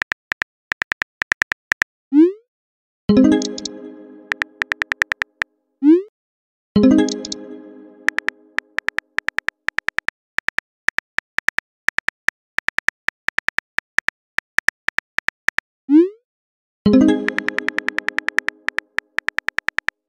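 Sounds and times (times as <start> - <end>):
phone keyboard typing clicks: 0.0 - 1.9, 3.3 - 5.5, 7.0 - 7.4, 8.1 - 15.6, 17.2 - 20.0
message arrival chime: 6.8 - 8.6.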